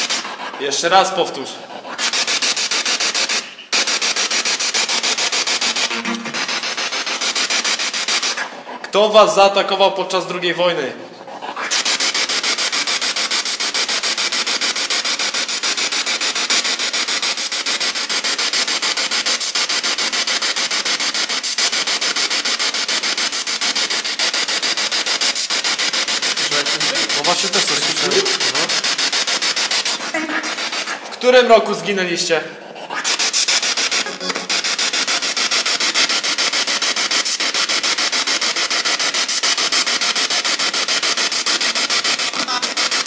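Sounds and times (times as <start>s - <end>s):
radio scanner static pulsing: 5.6s - 6.8s, 25.3s - 32.3s, 33.0s - 43.0s.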